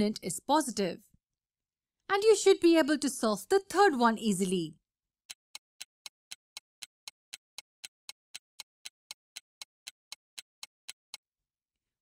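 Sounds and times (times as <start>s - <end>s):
clock ticking: 5.3s - 11.3s.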